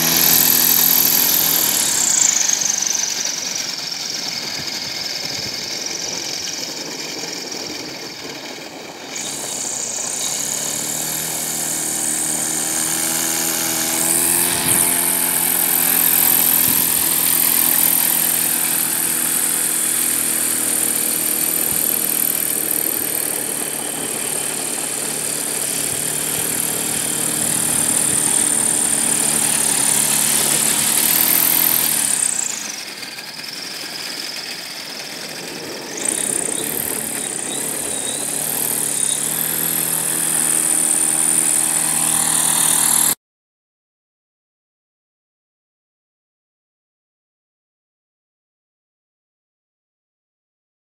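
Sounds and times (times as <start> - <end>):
electric motor and propeller whine: 0.0 - 43.2.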